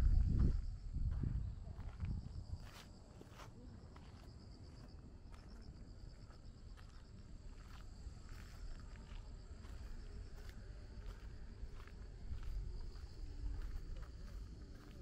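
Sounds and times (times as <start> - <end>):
faint footsteps: 0.0 - 15.0
insects chirping in pulsed trill: 0.0 - 15.0
low outdoor rumble: 7.3 - 15.0.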